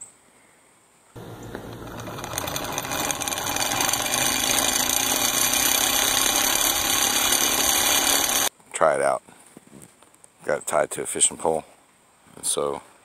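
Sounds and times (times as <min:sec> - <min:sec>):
fishing reel whirring: 0:01.2 - 0:08.5.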